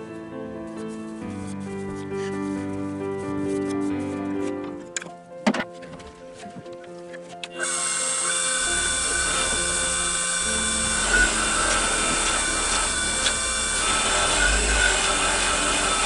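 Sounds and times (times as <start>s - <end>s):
wood lathe motor whine: 7.6s - 16.0s.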